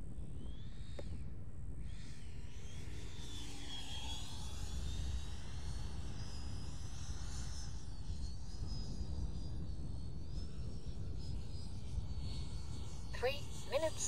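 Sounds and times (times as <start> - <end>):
electric ducted fan whining: 0.0 - 14.0.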